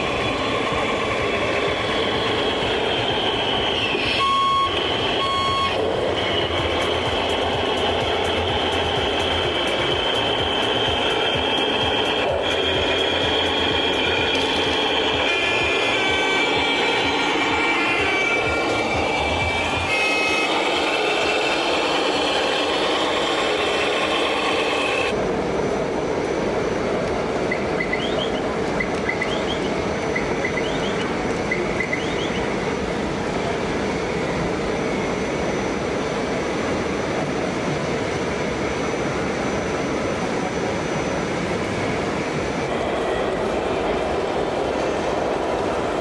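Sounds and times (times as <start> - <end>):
rc model trucks running: 0.0 - 25.2, 42.6 - 46.0.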